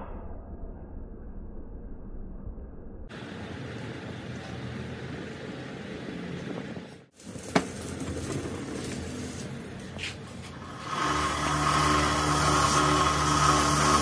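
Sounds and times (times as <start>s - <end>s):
workshop noise: 3.1s - 14.0s
wire wheel motor humming: 7.2s - 14.0s.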